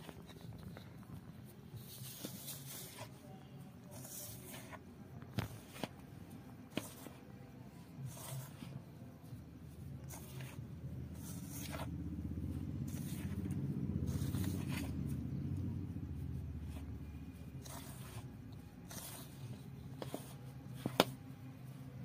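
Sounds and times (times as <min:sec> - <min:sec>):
hands scraping flour in a bowl: 0:00.0 - 0:21.4
passing vehicle rumble: 0:10.7 - 0:17.6.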